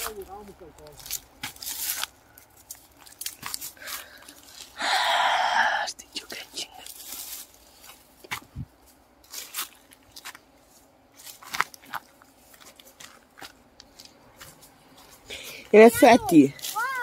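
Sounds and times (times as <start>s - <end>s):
dry twigs crunching and snapping: 0.0s - 4.8s, 11.1s - 14.5s.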